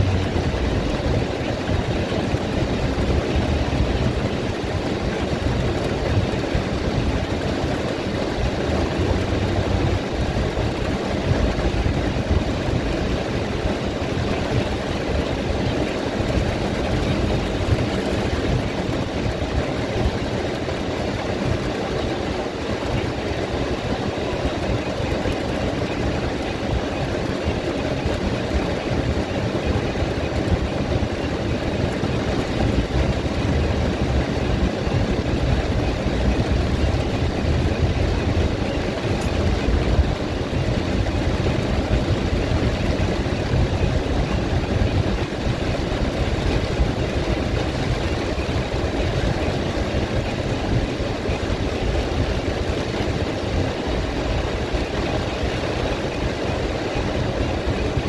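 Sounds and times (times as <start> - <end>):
car and traffic rumble: 0.0 - 58.0
rain on wet road hiss: 31.2 - 58.0.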